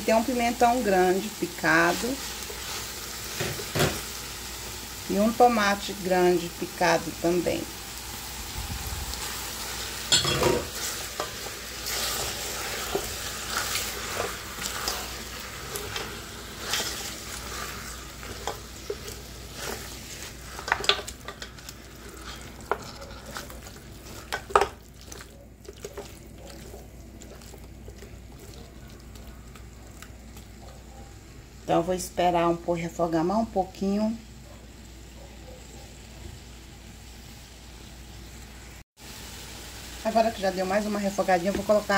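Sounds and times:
meat and vegetables sizzling: 0:00.0 - 0:41.9
spatula scraping and knocking pot: 0:10.1 - 0:28.6.

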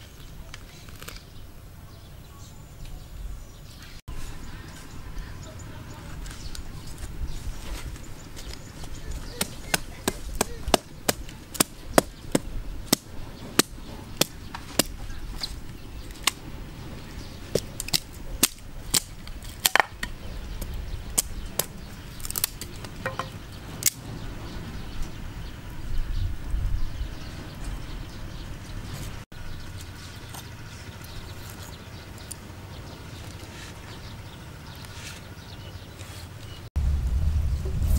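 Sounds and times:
hatchet chopping wood: 0:09.3 - 0:15.0, 0:17.5 - 0:20.2, 0:21.2 - 0:24.0.

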